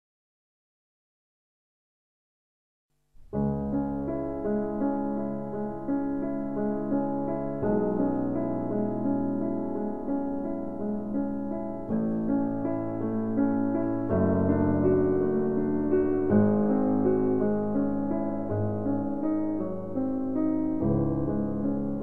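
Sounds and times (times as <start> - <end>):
slow piano music: 3.2 - 22.0.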